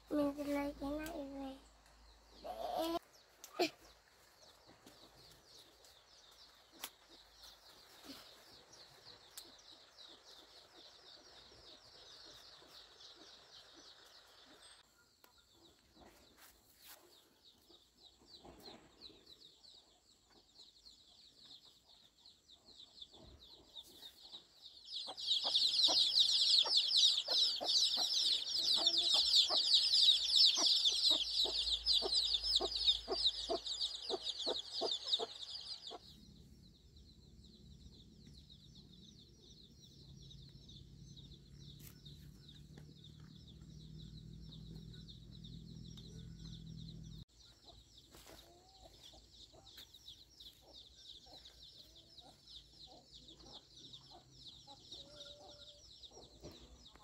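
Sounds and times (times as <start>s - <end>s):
chicks peeping: 22.5s - 36.2s, 37.9s - 57.0s.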